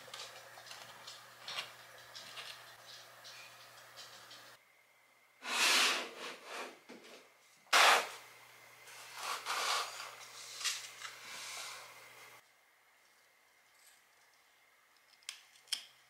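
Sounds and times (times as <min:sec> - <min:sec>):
sharp scrape or knock: 0:05.4 - 0:06.8, 0:07.7 - 0:08.2
potted plants rustling and scraping: 0:08.9 - 0:12.0.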